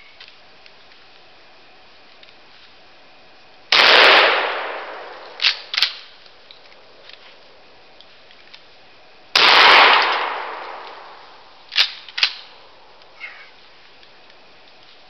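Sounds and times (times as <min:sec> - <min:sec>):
shotgun blast: 0:03.7 - 0:06.1, 0:09.4 - 0:11.2
shotgun slide clacking: 0:05.2 - 0:06.6, 0:11.7 - 0:12.6.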